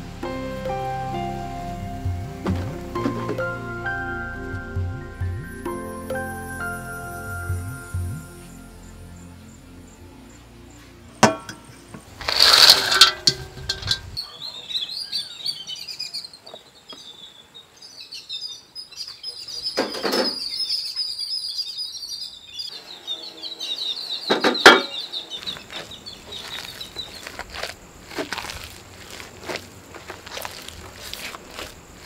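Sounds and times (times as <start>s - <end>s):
hands mixing in metal pot: 11.2s - 14.2s, 25.4s - 32.0s
small birds chirping: 14.0s - 32.0s.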